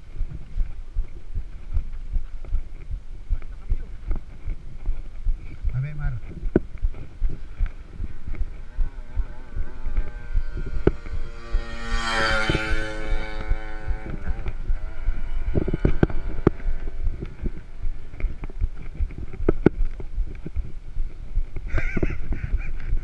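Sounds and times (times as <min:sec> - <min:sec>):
wind buffeting microphone: 0:00.0 - 0:23.0
vehicle engine passing: 0:07.5 - 0:18.7.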